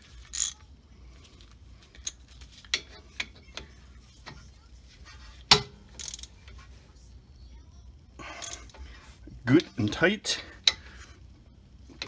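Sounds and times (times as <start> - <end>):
ratchet wrench clicking: 0.3 - 0.6, 6.0 - 6.3.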